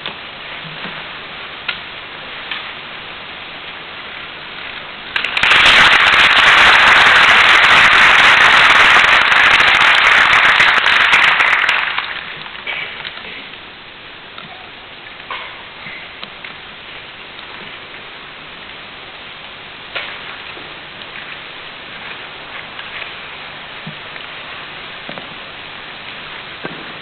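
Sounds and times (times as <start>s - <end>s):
audience applause: 5.1s - 12.7s.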